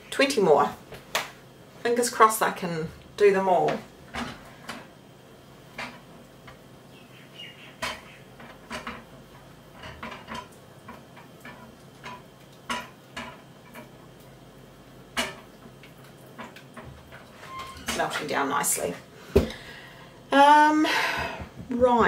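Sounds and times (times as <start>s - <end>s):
spatula scraping saucepan: 16.4s - 18.4s.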